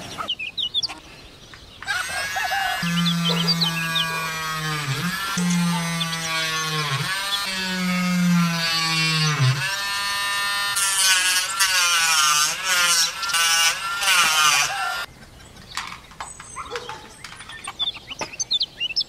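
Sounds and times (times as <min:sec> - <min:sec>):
rotary tool motor whine: 0:01.9 - 0:15.1
cutting disc cutting plastic: 0:02.8 - 0:14.9.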